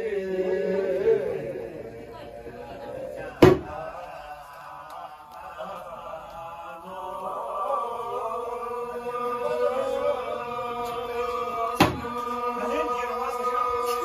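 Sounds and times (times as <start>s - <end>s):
women singing together: 0.0s - 14.0s
sharp knock: 11.8s - 12.0s.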